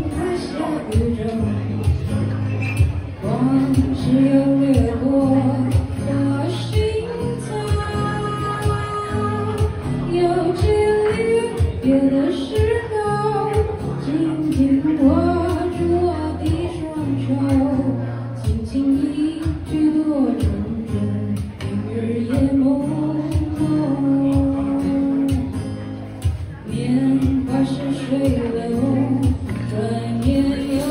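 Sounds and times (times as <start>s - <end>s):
woman singing: 0.0s - 2.2s, 3.2s - 30.9s
acoustic guitar chords: 0.0s - 30.9s.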